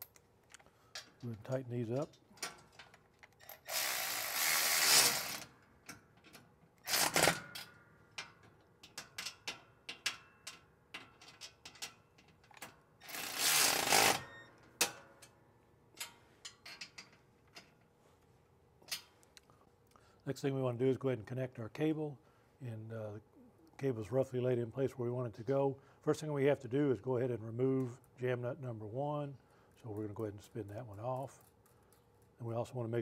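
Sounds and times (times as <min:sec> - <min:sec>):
metal parts clinking: 0:00.0 - 0:15.4, 0:16.0 - 0:17.8
cordless ratchet running: 0:03.5 - 0:05.4, 0:13.1 - 0:14.2.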